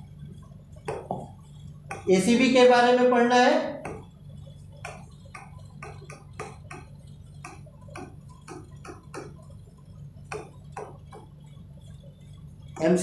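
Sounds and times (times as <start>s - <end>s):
steady low hum: 0.0s - 13.0s
pen tapping on whiteboard screen: 0.8s - 2.2s, 3.1s - 4.1s, 4.8s - 9.5s, 10.2s - 11.4s.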